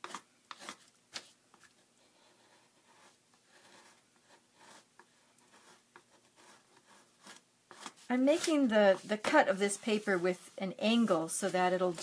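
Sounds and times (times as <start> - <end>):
knife scraping book cover: 0.0 - 1.3.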